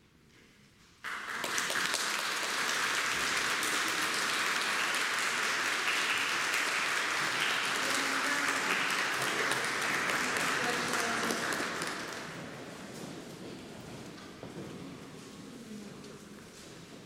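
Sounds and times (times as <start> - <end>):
audience applause: 1.0 - 12.6.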